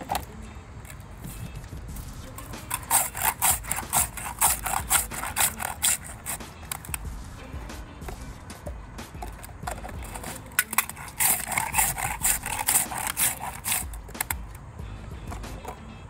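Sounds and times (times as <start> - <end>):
ice scraper scraping ice: 0.0 - 7.1, 9.2 - 14.6
sharp clicks: 2.3 - 7.0, 8.1 - 14.6.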